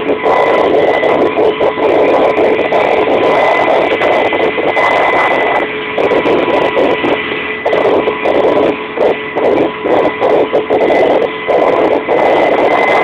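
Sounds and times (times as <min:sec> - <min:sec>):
helicopter engines and rotors: 0:00.0 - 0:13.0.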